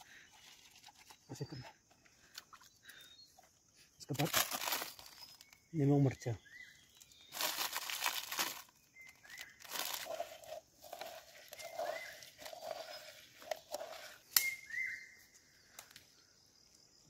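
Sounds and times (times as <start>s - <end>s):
leaves and plastic rustling in water: 4.1s - 6.2s, 6.9s - 14.2s.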